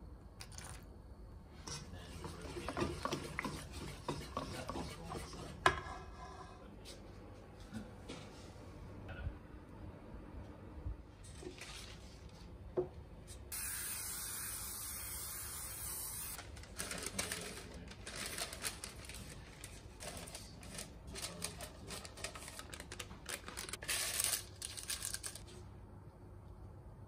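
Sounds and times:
cooking spray hissing: 13.5 - 16.4
baking paper crackling: 16.3 - 25.5.

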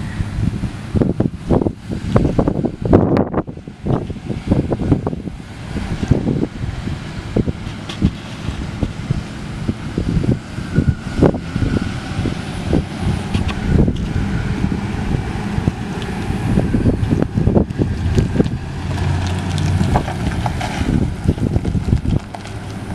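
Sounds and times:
pickup truck engine driving past: 0.0 - 22.9
wind buffeting microphone: 0.0 - 22.9.

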